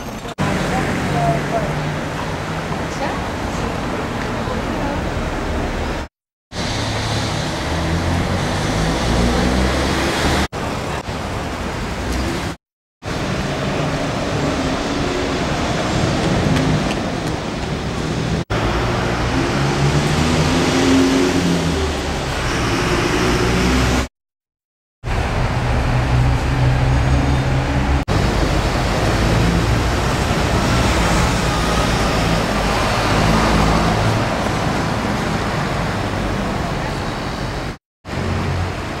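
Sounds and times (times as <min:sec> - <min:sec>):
street traffic: 0:00.0 - 0:24.1, 0:25.0 - 0:39.0
vehicle engine and road rumble: 0:25.0 - 0:39.0.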